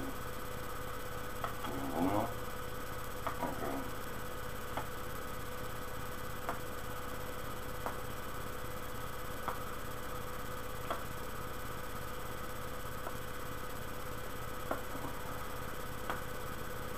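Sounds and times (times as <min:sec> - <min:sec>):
electrical hum and hiss: 0:00.0 - 0:16.9.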